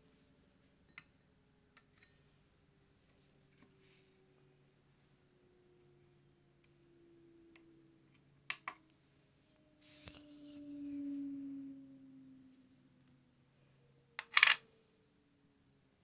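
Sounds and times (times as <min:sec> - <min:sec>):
low hum falling in pitch: 0:05.3 - 0:14.2
soft rustle: 0:09.2 - 0:11.2.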